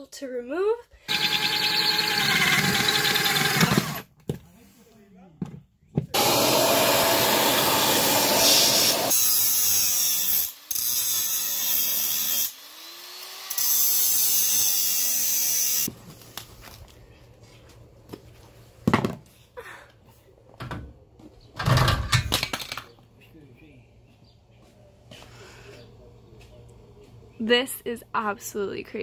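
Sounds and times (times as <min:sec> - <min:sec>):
electric power tool running: 0:01.1 - 0:04.1, 0:06.2 - 0:15.9.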